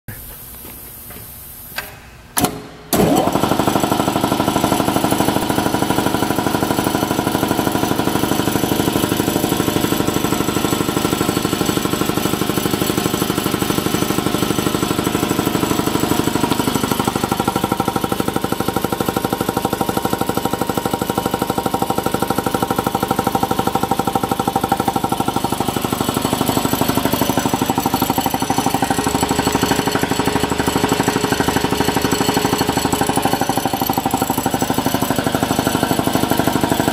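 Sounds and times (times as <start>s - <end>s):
air compressor running: 0.1s - 36.9s
piston pump beating: 3.7s - 36.9s.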